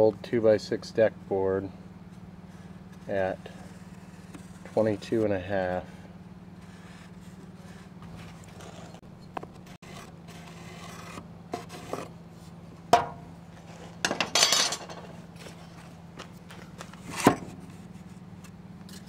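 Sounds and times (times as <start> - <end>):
low steady hum: 0.0 - 19.0
wooden board scraping on saw: 2.4 - 6.0, 6.6 - 12.5.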